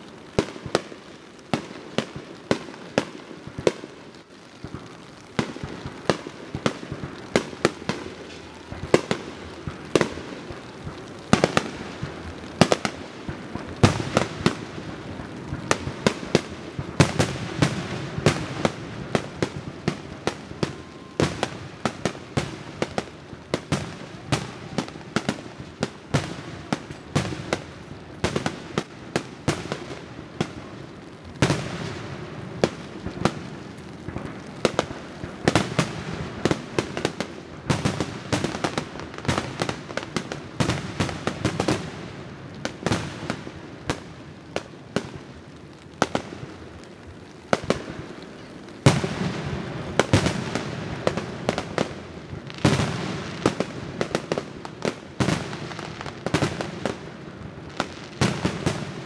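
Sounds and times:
fireworks bangs: 0:00.0 - 0:59.0.

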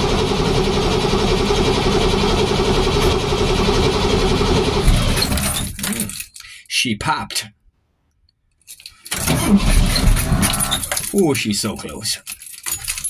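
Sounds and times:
engine cranking on starter motor: 0:00.0 - 0:06.1, 0:09.1 - 0:11.2.

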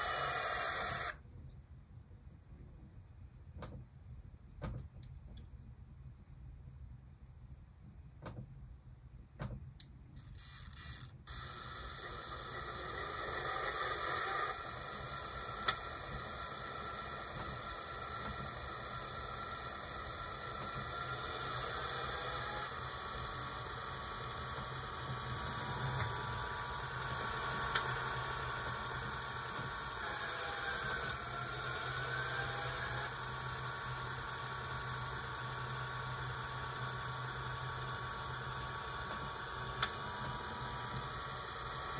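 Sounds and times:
clicks: 0:04.6 - 0:05.5, 0:15.6 - 0:15.8
model diesel engine sound: 0:14.8 - 0:32.4.

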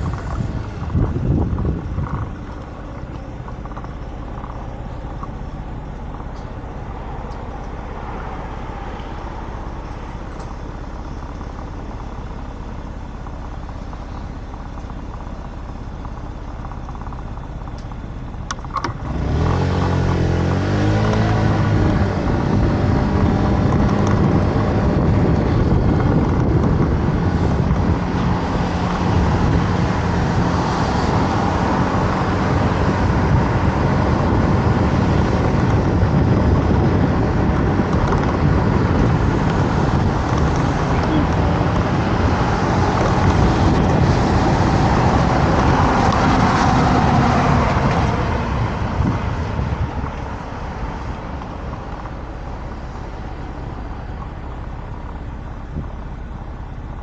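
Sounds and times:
road and wind noise: 0:00.0 - 0:57.0
scooter engine idling and revving: 0:00.0 - 0:57.0.

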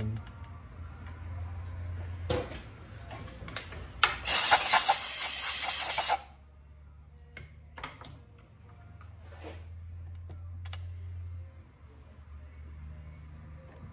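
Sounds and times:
compressed air hiss: 0:04.2 - 0:06.3.

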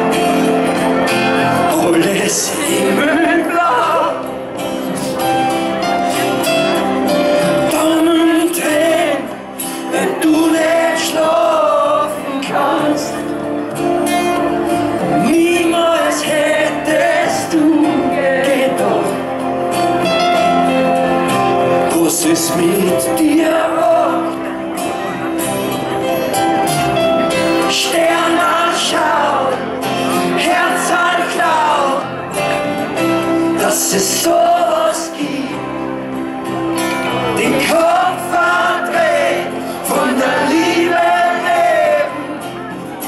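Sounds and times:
acoustic guitars: 0:00.0 - 0:43.0
man singing: 0:01.2 - 0:05.3, 0:07.3 - 0:13.6, 0:14.9 - 0:20.1, 0:21.4 - 0:25.2, 0:27.3 - 0:36.1, 0:37.1 - 0:42.7.

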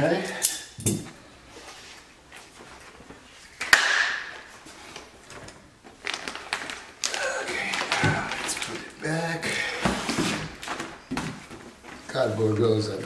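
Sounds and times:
paper and cardboard rustling: 0:04.4 - 0:13.0
plastic wrapping crinkling: 0:04.4 - 0:13.0.

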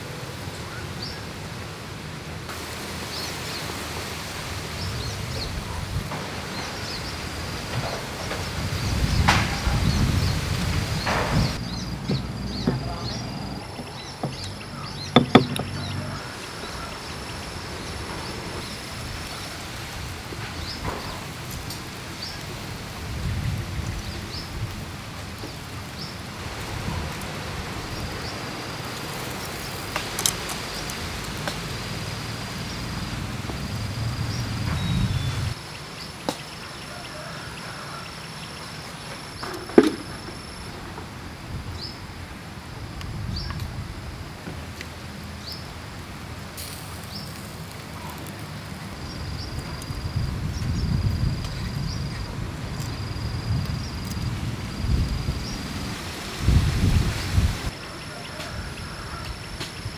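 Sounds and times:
insects trilling: 0:02.6 - 0:59.9
stone pestle knocking in mortar: 0:15.2 - 0:15.8.

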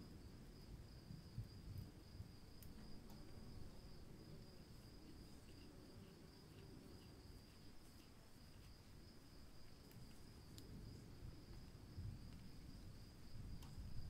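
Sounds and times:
faint high-pitched whine: 0:00.0 - 0:14.0
faint ticks: 0:09.7 - 0:10.8, 0:13.5 - 0:13.9.

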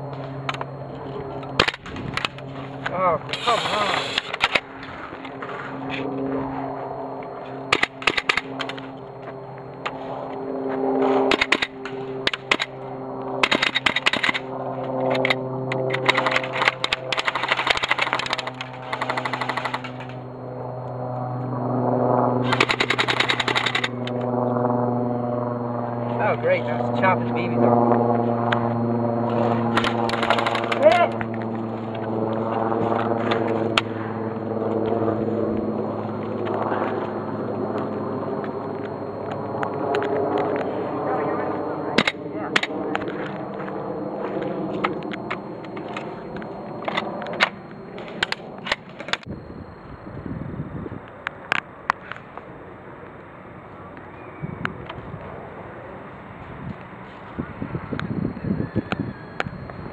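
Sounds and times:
steady low hum: 0:00.0 - 0:59.9
sharp clicks: 0:11.3 - 0:12.7, 0:13.4 - 0:14.4, 0:15.1 - 0:20.2, 0:22.5 - 0:24.3, 0:29.7 - 0:31.5
airsoft gunfire bursts: 0:15.9 - 0:20.0, 0:22.4 - 0:23.9.

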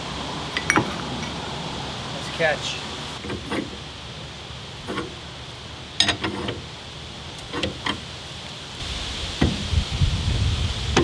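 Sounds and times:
metal hand tools clinking: 0:00.6 - 0:01.4.

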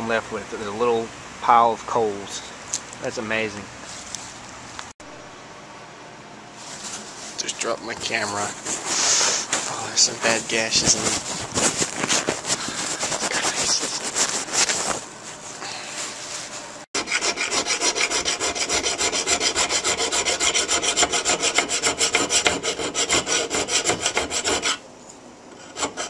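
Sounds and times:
handling and rustling: 0:03.8 - 0:04.9, 0:06.6 - 0:16.8
file rasping on steel blade: 0:17.0 - 0:24.8, 0:25.6 - 0:26.0.

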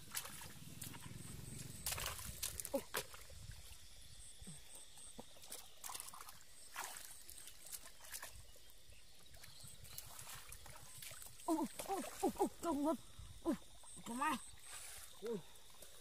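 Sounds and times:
hands squelching through wet mud: 0:00.0 - 0:03.7, 0:05.2 - 0:08.6
faint splashes: 0:00.0 - 0:16.0.

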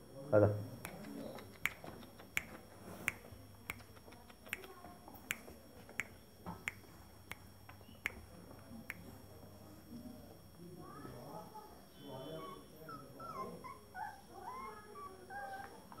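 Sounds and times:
finger snaps: 0:00.8 - 0:08.2.

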